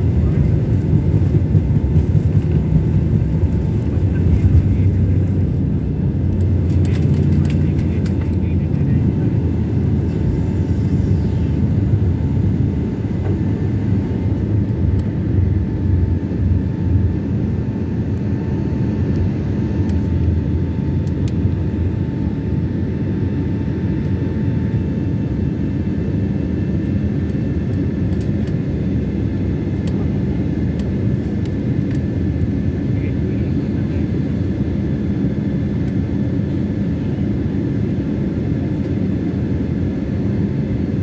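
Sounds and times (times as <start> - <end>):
faint steady whine: 0.0 - 25.4
airliner cabin engine noise: 0.0 - 41.0.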